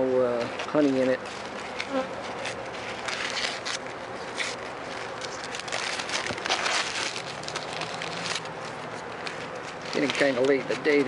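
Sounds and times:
beehive frame rustling and crackling: 0:00.3 - 0:11.0.

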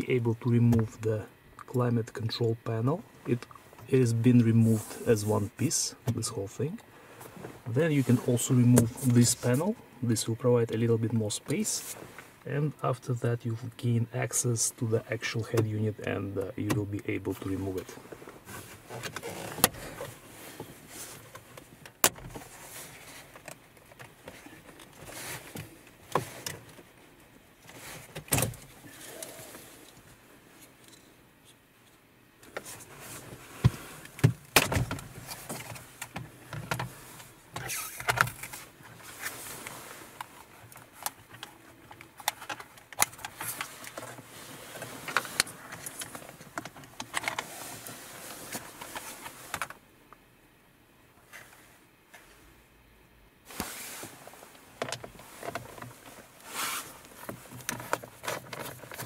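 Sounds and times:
plastic rubbing and scraping: 0:54.8 - 0:59.0.

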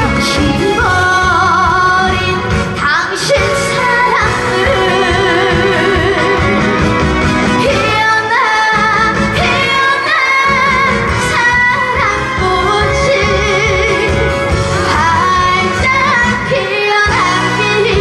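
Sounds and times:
girl singing into a microphone: 0:07.6 - 0:14.2, 0:14.9 - 0:18.0.

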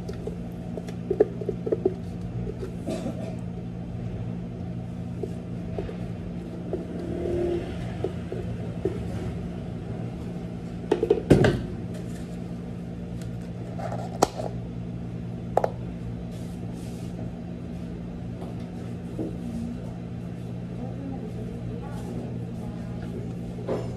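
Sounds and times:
kitchen equipment hum: 0:00.0 - 0:23.9
plastic cups knocking on counter: 0:10.9 - 0:11.6.

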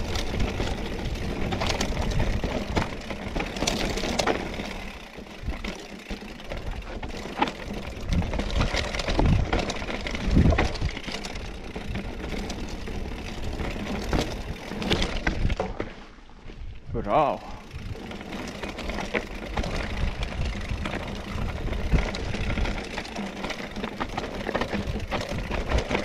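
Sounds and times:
wind rumble on microphone: 0:00.0 - 0:03.5, 0:07.8 - 0:12.2, 0:19.5 - 0:23.0
bike knocks and rattles: 0:00.0 - 0:16.0, 0:17.7 - 0:26.0
tyres crunching over gravel: 0:18.0 - 0:26.0.

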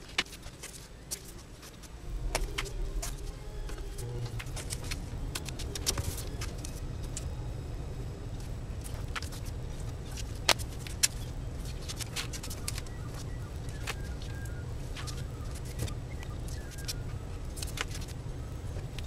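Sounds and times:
low hum: 0:00.0 - 0:19.0
paper and tape clicks: 0:15.0 - 0:18.2.

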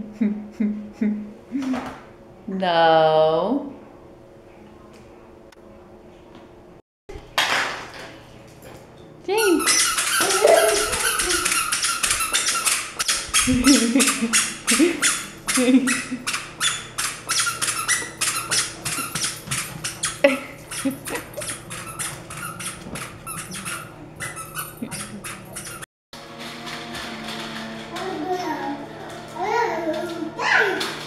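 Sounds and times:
squeaker shoes squeaking: 0:09.4 - 0:25.9.

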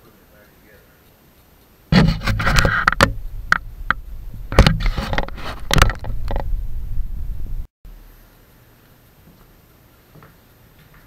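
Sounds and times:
objects knocking and clattering: 0:01.9 - 0:06.6.

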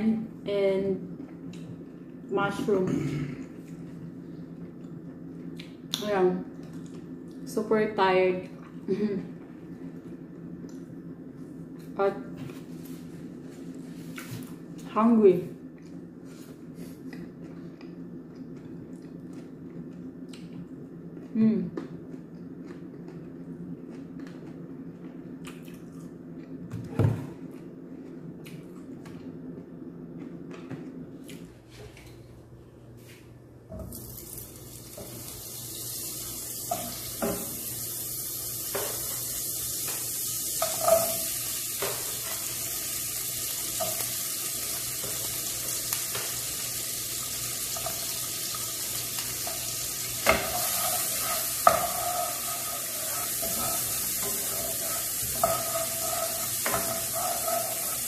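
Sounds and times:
butter sizzling in a pan: 0:34.7 - 0:58.0
wooden spoon scraping a pan: 0:50.2 - 0:58.0.

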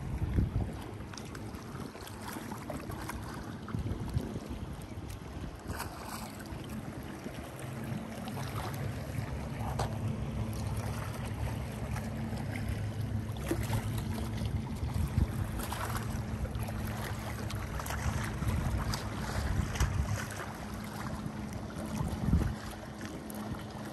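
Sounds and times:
wind buffeting microphone: 0:00.0 - 0:06.1, 0:13.6 - 0:23.7
low motor hum: 0:00.0 - 0:23.9.

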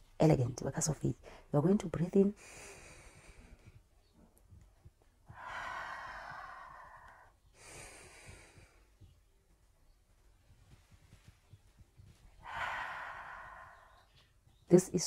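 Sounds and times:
woman breathing in through nose: 0:02.4 - 0:03.8, 0:05.3 - 0:09.1, 0:12.4 - 0:14.1
woman breathing out: 0:05.3 - 0:08.9, 0:12.4 - 0:14.1.

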